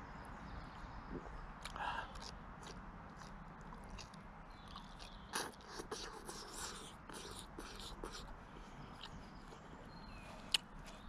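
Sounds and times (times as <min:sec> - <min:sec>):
wet mouth clicks: 0:01.1 - 0:08.3, 0:10.5 - 0:10.8
person chewing asparagus: 0:01.1 - 0:11.0.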